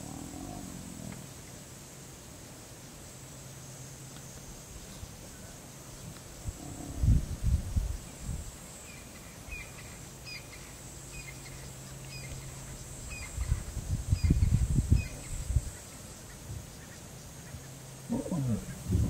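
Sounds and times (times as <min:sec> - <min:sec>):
steady low hum: 0:06.3 - 0:19.0
low rumbling: 0:18.1 - 0:19.0.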